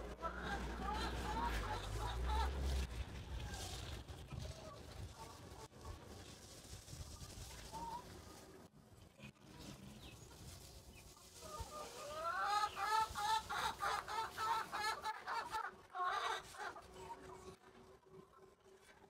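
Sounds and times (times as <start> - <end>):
chicken squawking: 0.0 - 2.8, 11.4 - 17.3.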